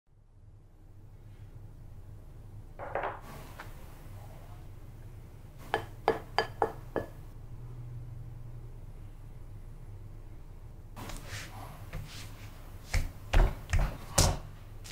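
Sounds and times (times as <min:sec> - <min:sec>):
glass bowl clinking: 0:05.7 - 0:07.2.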